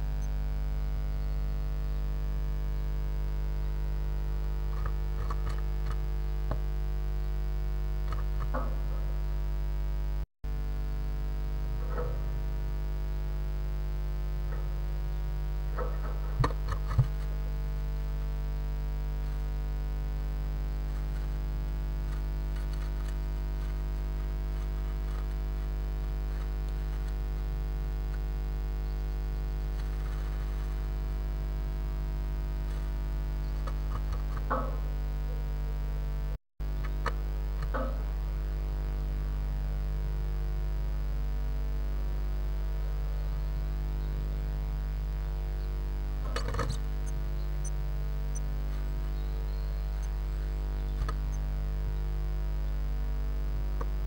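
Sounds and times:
electrical mains hum: 0.0 - 54.0
bird scratching and rustling: 20.8 - 31.2, 32.6 - 34.7.

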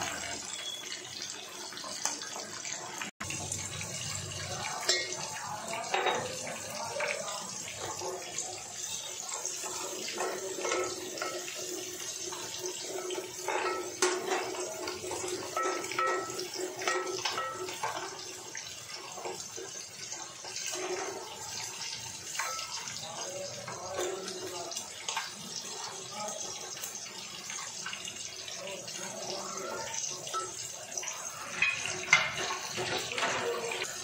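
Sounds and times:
oil sizzling in a pot: 0.0 - 34.0
wooden spatula scraping a pot: 19.0 - 24.4.

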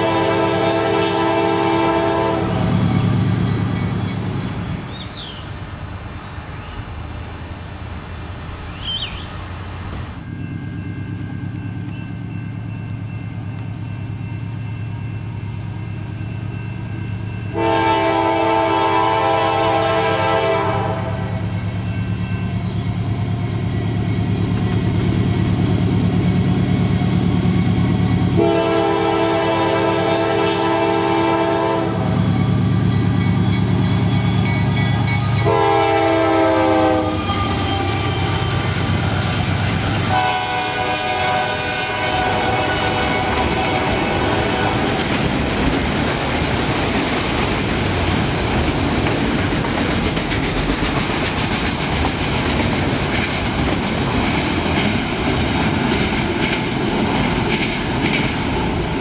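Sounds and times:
train air horn blasts: 0.0 - 2.9, 17.5 - 21.5, 28.3 - 32.2, 35.4 - 38.6, 40.0 - 45.0
diesel locomotive engines running: 0.0 - 59.0.

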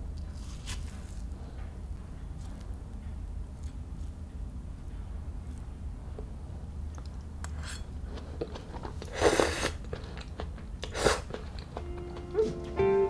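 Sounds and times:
crunching of squash strands: 0.1 - 1.6.

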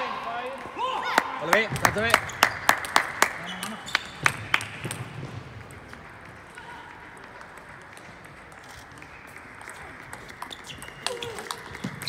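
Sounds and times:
busy hall background noise: 0.0 - 12.0
shoe squeak on floor: 10.4 - 12.0.

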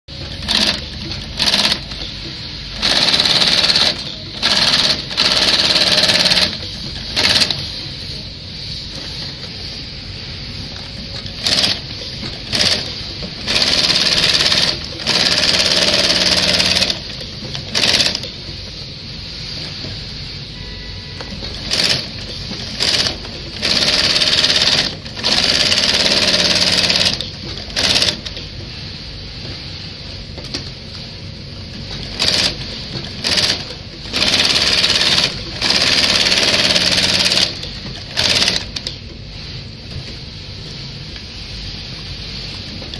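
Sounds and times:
sewing machine stitching: 0.1 - 2.1, 2.8 - 7.7, 11.2 - 18.3, 21.6 - 28.4, 32.0 - 38.9.

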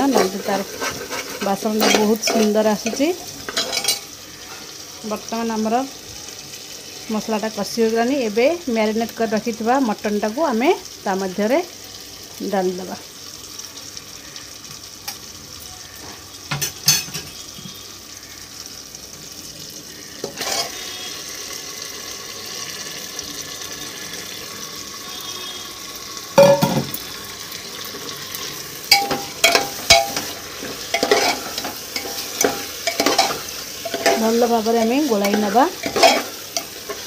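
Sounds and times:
meat sizzling in hot oil: 0.0 - 37.0
metal ladle clanking against pot: 28.9 - 34.2, 35.2 - 37.0.

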